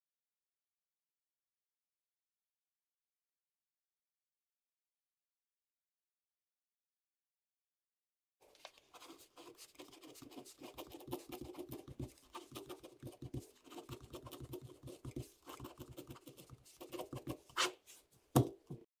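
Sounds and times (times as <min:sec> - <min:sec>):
pen scratching on paper: 0:08.8 - 0:18.1.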